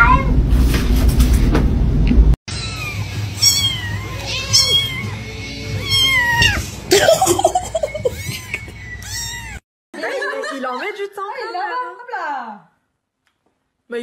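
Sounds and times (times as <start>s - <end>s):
kitten mewing: 2.5s - 6.7s, 8.1s - 9.6s.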